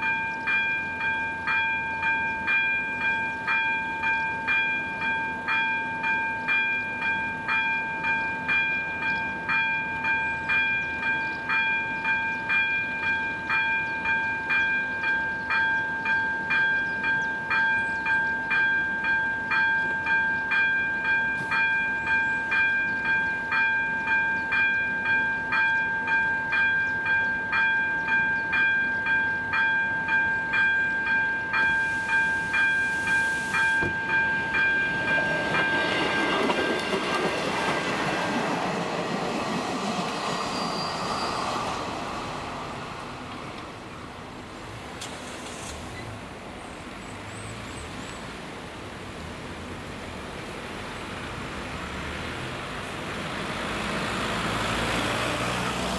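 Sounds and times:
level crossing warning bell ringing: 0:00.0 - 0:44.0.

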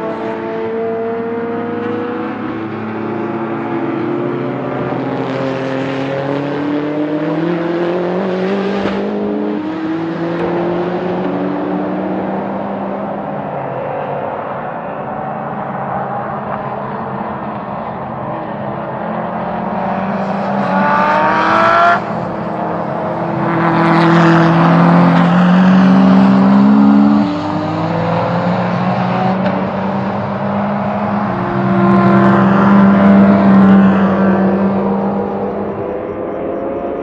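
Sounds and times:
race car engines revving: 0:00.0 - 0:37.0.

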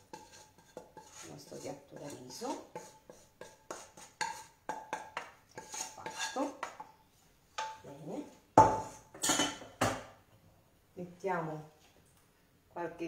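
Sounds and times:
utensil scraping metal pan: 0:00.0 - 0:06.7.

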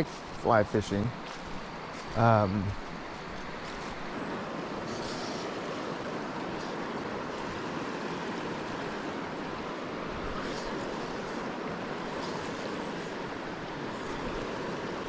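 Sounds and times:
river water flowing: 0:00.0 - 0:15.0.

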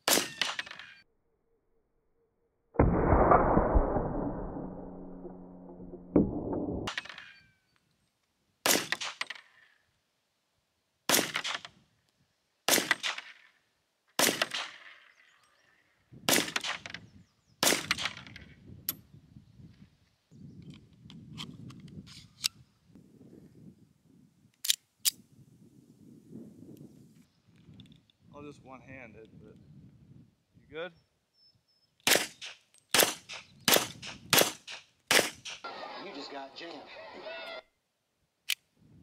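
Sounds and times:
pistol shots with echo: 0:12.7 - 0:13.2, 0:32.1 - 0:35.6.

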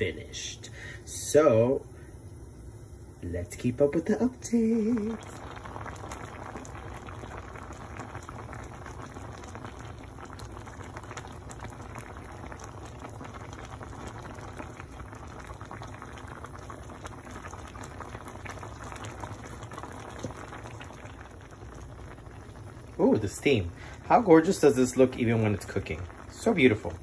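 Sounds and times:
sauce bubbling in a pot: 0:00.0 - 0:27.0.

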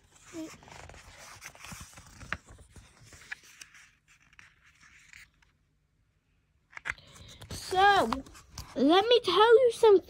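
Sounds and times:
paper pages rustling: 0:00.0 - 0:05.6, 0:06.7 - 0:09.0.

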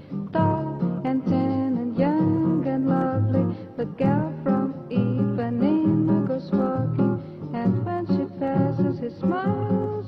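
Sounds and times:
guitar music with sliding melody: 0:00.0 - 0:10.0.

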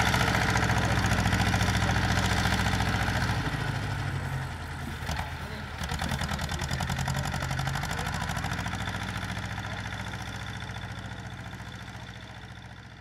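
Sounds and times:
tractor engine chugging: 0:00.0 - 0:13.0.

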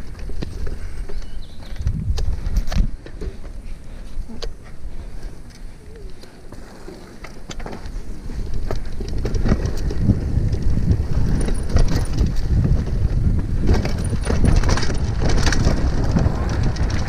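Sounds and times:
wind on microphone: 0:00.0 - 0:03.2, 0:08.0 - 0:17.0
bike tyres crunching over dirt: 0:00.0 - 0:17.0
bike clattering over bumps: 0:06.2 - 0:17.0.

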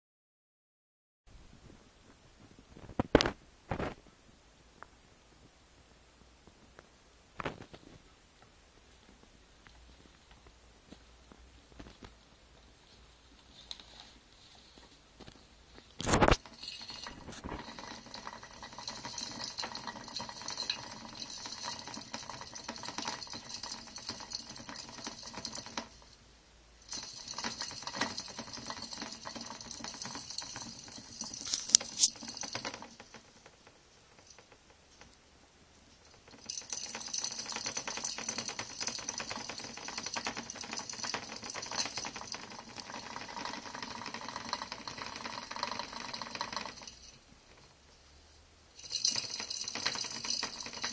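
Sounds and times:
plastic exercise wheel rattling: 0:16.0 - 0:26.1, 0:26.9 - 0:35.1, 0:36.0 - 0:47.8, 0:48.8 - 0:50.9.

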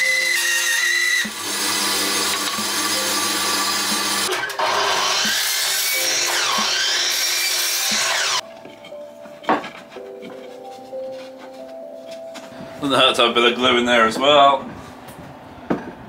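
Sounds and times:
bandsaw cutting timber: 0:00.0 - 0:08.4
mitre saw cutting timber: 0:00.0 - 0:08.4
background music: 0:00.0 - 0:14.2.

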